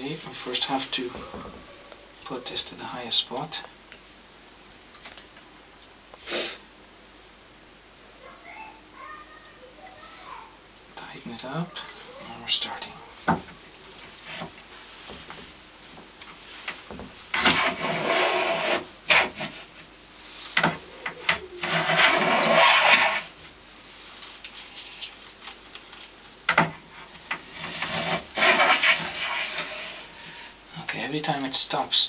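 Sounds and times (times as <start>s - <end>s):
plane shaving wood: 17.3s - 19.6s, 21.3s - 23.3s, 27.5s - 30.1s.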